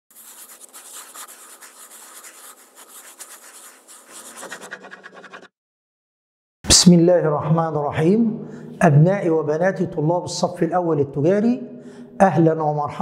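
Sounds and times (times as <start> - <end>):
quill nib scratching paper: 0.1 - 5.5.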